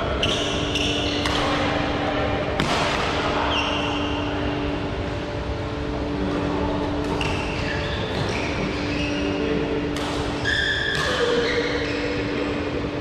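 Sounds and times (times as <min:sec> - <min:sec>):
hum of large hall: 0:00.0 - 0:13.0
sports shoes squeaking on floor: 0:07.2 - 0:09.3, 0:10.4 - 0:12.3.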